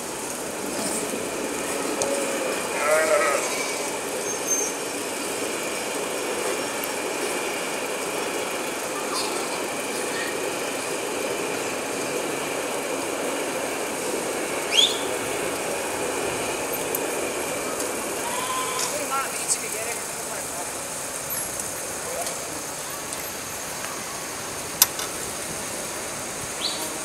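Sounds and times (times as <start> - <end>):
low traffic hum: 0.0 - 27.0
high-pitched sheep call: 2.7 - 3.9, 18.2 - 18.9.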